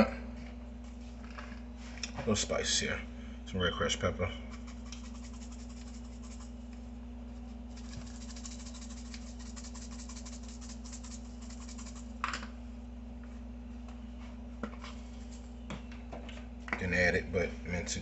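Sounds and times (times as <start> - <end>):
shaker jar rattling: 4.5 - 6.6, 7.5 - 12.4.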